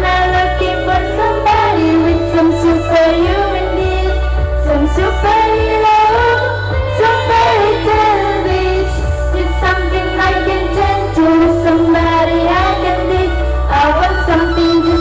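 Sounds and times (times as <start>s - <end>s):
girls' choir singing: 7.0s - 15.0s.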